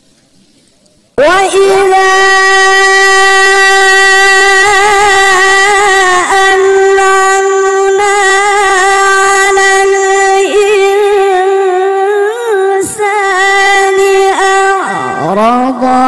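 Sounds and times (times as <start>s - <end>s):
person reciting melodically: 1.2s - 16.0s.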